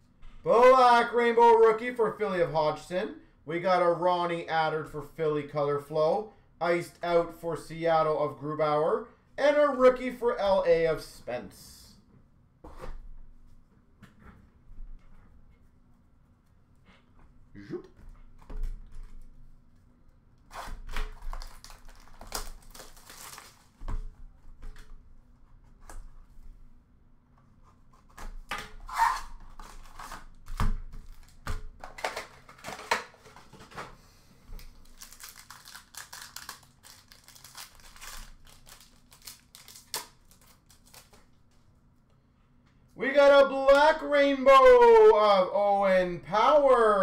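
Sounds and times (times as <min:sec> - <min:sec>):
cardboard and wrapper tearing: 0:20.5 - 0:23.9, 0:28.1 - 0:33.8, 0:34.6 - 0:41.3
wrapper crinkling and tearing: 0:20.5 - 0:23.9, 0:29.0 - 0:33.1, 0:34.6 - 0:41.6.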